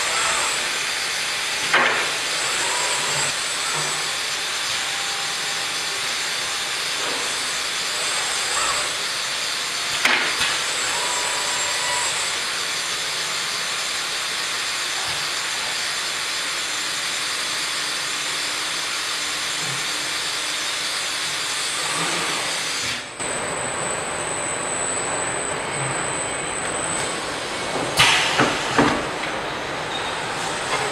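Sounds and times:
hissing machine noise: 0.0 - 30.9.

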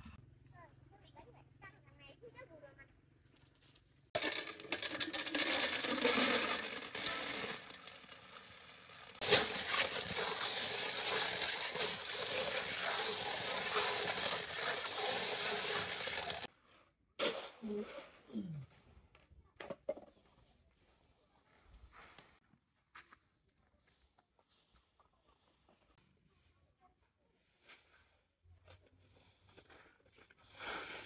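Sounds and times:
snail shells clattering: 4.2 - 16.5
water pouring into a basin: 4.2 - 16.5.

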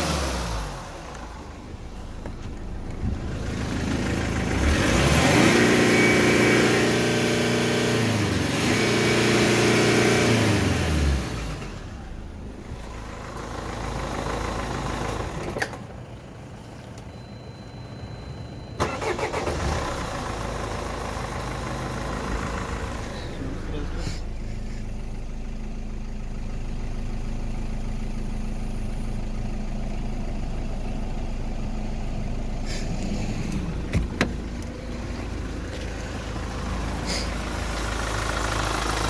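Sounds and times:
diesel engine revving and idling: 0.0 - 16.9, 17.9 - 39.0
short steady beep: 17.1 - 18.8.

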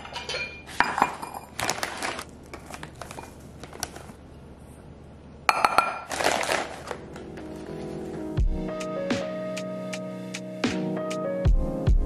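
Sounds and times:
cup clinking against glass bowl: 5.5 - 6.1
music: 7.0 - 12.0.

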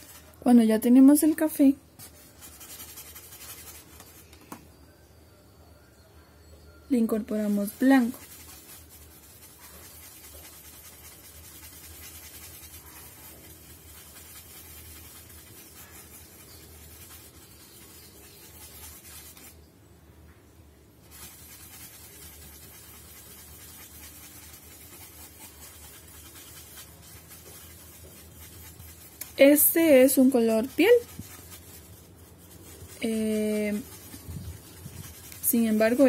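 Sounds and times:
paintbrush scrubbing on foam: 0.0 - 4.2, 7.1 - 19.6, 21.0 - 36.0.

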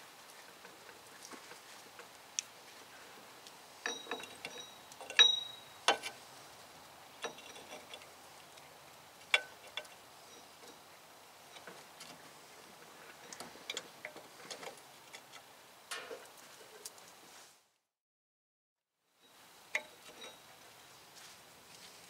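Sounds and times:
sharp metal clinks: 3.8 - 5.8
hand tools clicking on metal: 3.8 - 6.2.

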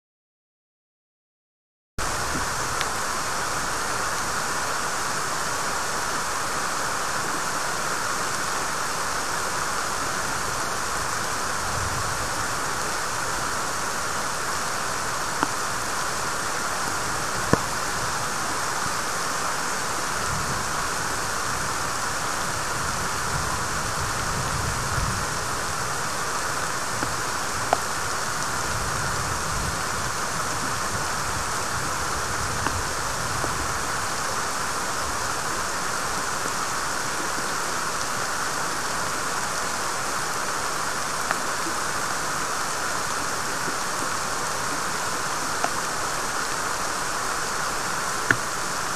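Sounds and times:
heavy rain falling: 2.0 - 48.9
wind gusts rumbling: 10.1 - 13.6, 19.9 - 34.3.

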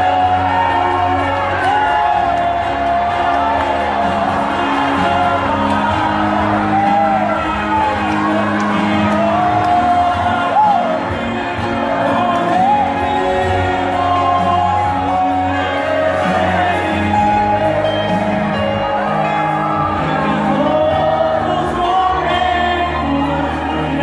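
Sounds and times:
amplified musical accompaniment: 0.0 - 24.0
steady bass line: 0.0 - 24.0
man singing into a microphone: 8.7 - 19.4, 20.0 - 24.0.

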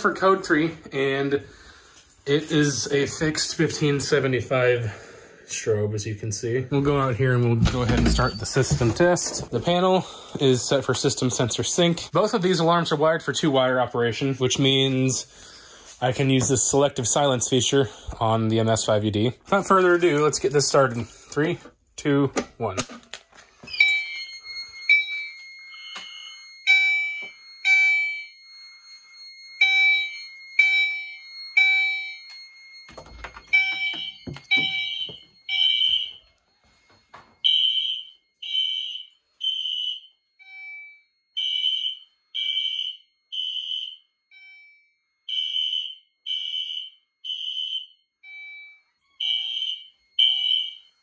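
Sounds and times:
alarm chime tones: 6.0 - 21.6, 23.5 - 39.7, 40.3 - 43.6, 44.3 - 45.7, 48.2 - 51.0
fire alarm horn blasts: 23.7 - 51.0.

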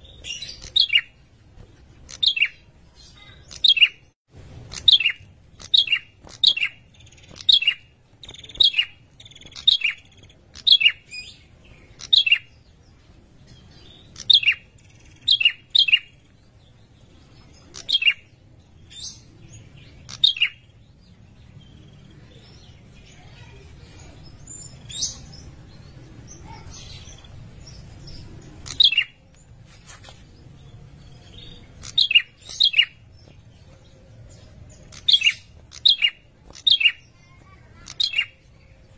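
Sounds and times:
bird high sharp calls: 3.2 - 12.5, 31.2 - 38.8.

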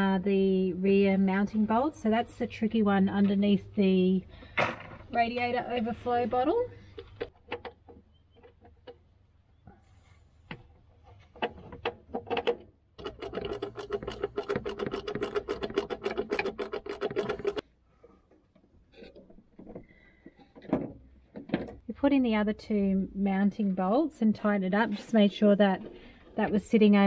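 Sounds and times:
tool handling clicks and knocks: 6.9 - 9.1, 10.5 - 21.9.

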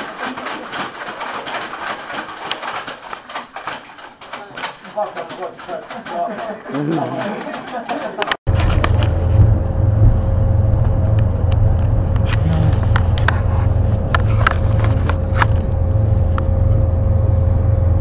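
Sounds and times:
constant hum tone: 8.5 - 18.0
vehicle rumble from inside: 8.5 - 18.0.

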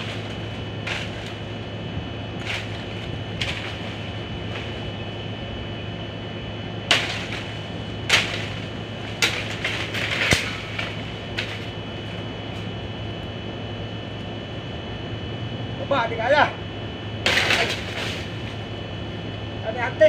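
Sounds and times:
knife chopping branch: 0.0 - 1.4, 2.4 - 4.9, 6.9 - 11.8
steady low hum: 0.0 - 20.0.

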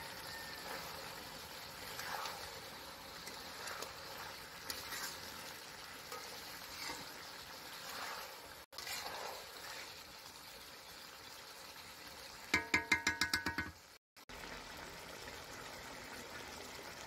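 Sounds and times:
metal spatula scraping: 0.0 - 10.3
curry sizzling in a wok: 0.0 - 17.0.

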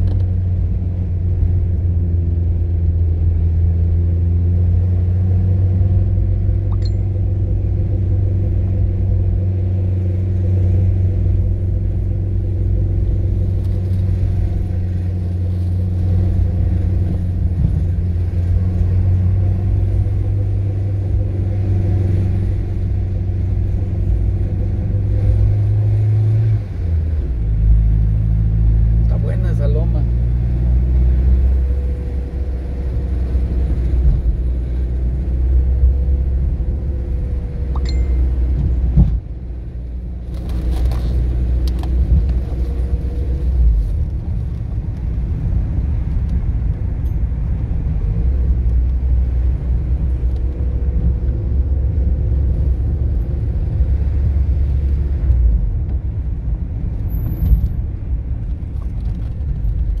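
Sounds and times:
car engine and tyre rumble: 0.0 - 60.0
light rattles and clicks: 56.9 - 60.0.

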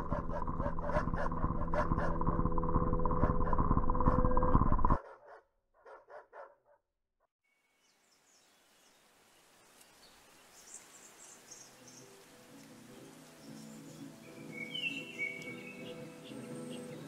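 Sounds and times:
faint outdoor ambience: 7.6 - 17.0.

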